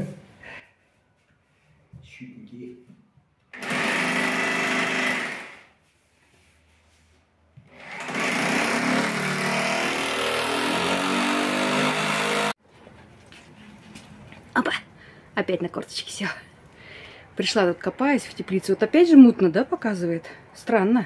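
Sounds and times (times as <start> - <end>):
rotary hammer drilling into wall: 3.5 - 5.7, 7.7 - 12.6.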